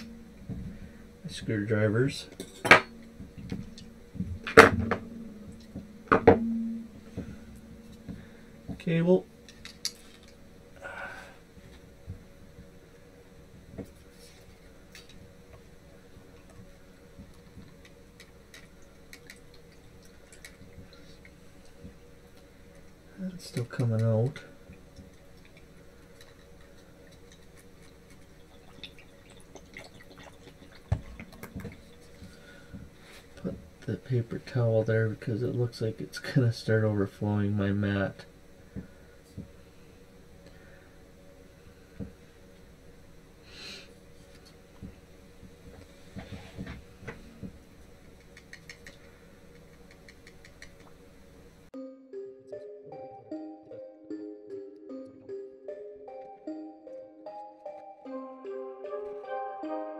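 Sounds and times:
liquid dripping: 27.1 - 32.3.

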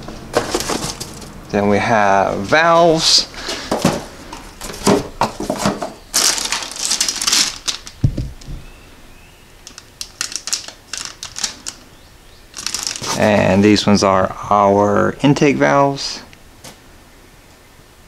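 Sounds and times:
cardboard rustling: 0.0 - 1.4, 3.4 - 8.7, 9.7 - 11.8, 12.6 - 13.5
plastic bags crinkling: 0.0 - 1.4, 3.4 - 8.7, 9.6 - 11.9, 12.5 - 13.5.

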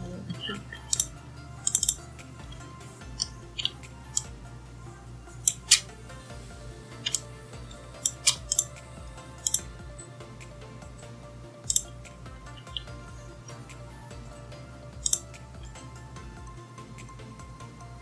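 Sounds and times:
computer mouse clicking: 1.7 - 2.0, 8.0 - 8.7, 9.4 - 9.6, 11.7 - 11.9, 15.0 - 15.8.

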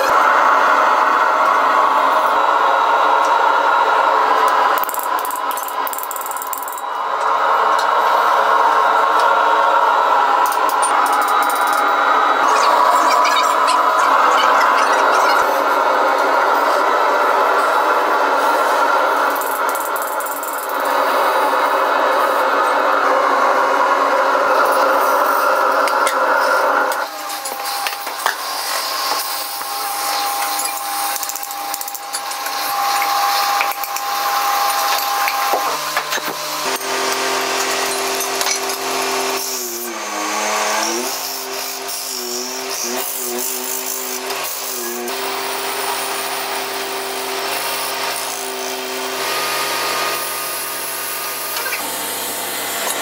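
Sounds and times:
lathe motor humming: 0.0 - 53.0
cutting tool hissing on metal: 24.5 - 53.0.

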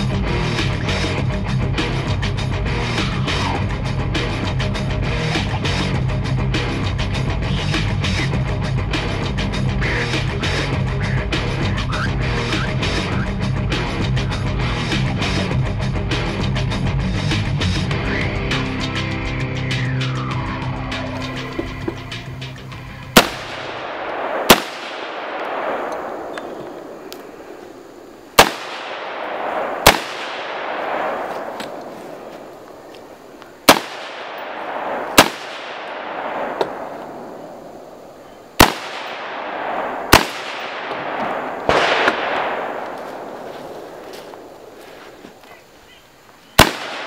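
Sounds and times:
rifle shots with long echo: 23.1 - 45.1, 46.6 - 47.0.

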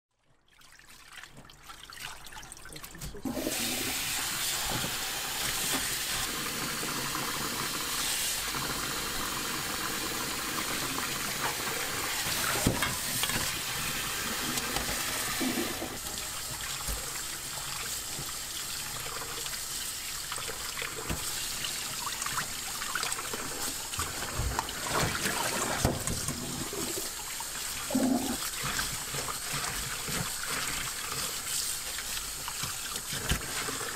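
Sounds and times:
tap water running into sink: 0.5 - 33.9
hands washing in water: 10.6 - 33.9.

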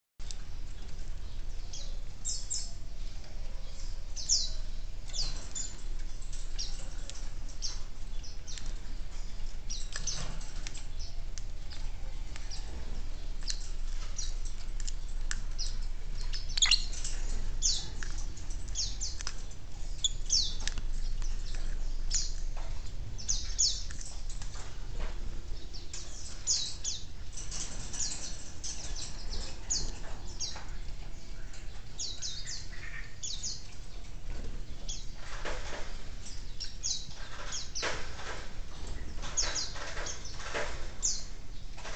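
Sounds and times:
lovebirds chirping: 0.2 - 41.9.

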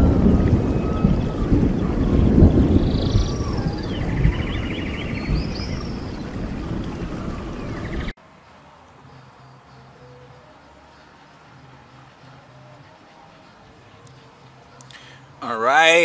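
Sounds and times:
low rumble: 0.0 - 8.1.

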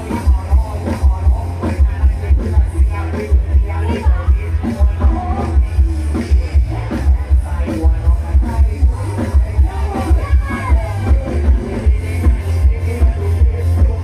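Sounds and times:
heavy bass beat: 0.0 - 14.0
person singing: 0.0 - 14.0
amplified dance music: 1.9 - 12.6.

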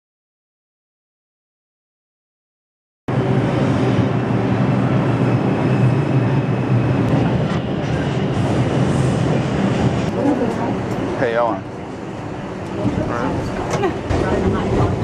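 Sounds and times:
subway train rumbling on rails: 3.1 - 15.0.

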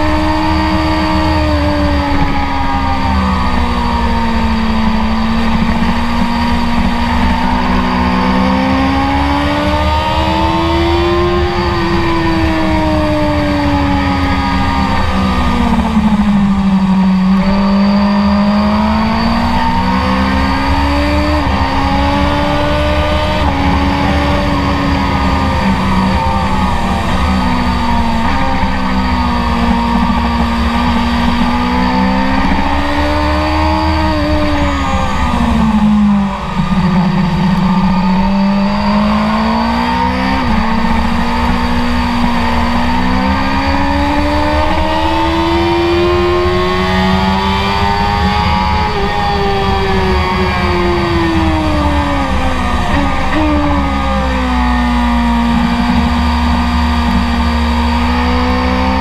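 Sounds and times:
motorcycle engine revving: 0.0 - 59.0
wind rushing: 19.6 - 43.2.

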